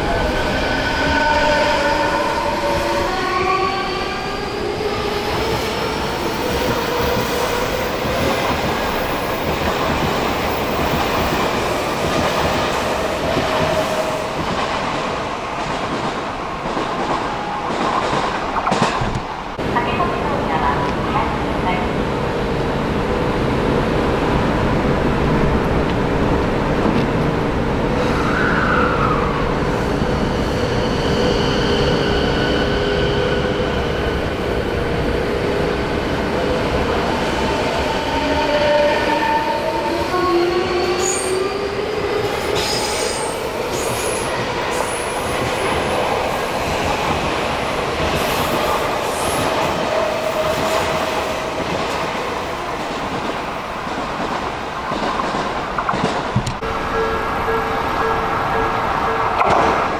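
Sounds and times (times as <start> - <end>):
train wheels on rails: 4.0 - 21.0, 30.1 - 59.9.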